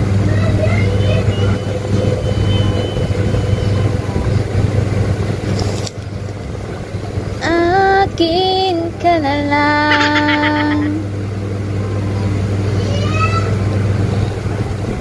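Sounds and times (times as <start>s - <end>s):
low hum: 0.0s - 15.0s
woman singing: 7.4s - 11.0s.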